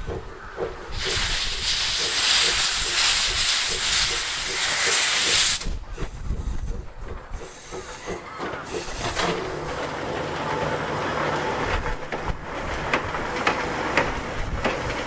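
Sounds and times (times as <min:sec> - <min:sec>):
loud steam hiss: 0:00.0 - 0:09.7
locomotive low rumble: 0:00.0 - 0:15.0.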